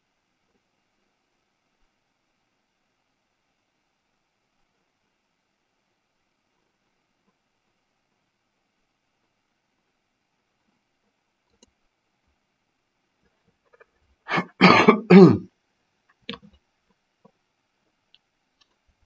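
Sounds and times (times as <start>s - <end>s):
faint clicks: 11.0s - 11.9s, 16.1s - 19.0s
man clearing throat: 14.3s - 15.5s.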